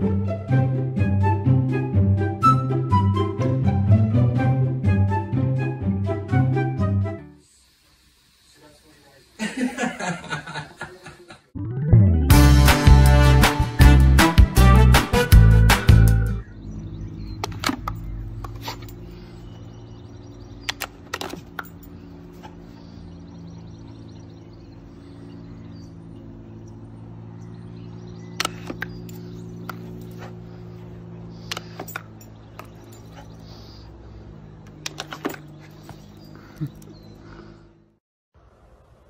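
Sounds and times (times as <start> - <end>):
steady low hum: 15.4 - 39.0.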